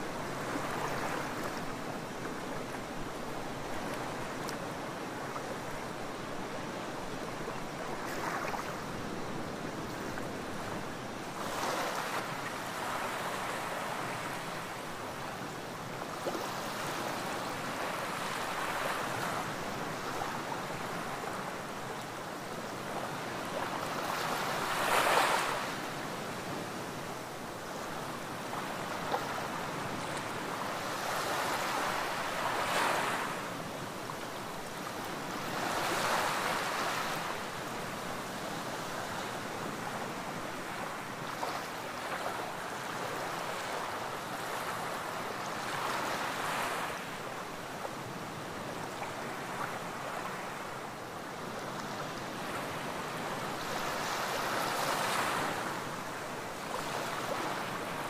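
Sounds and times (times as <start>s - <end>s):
waves lapping on sandy beach: 0.0s - 58.0s.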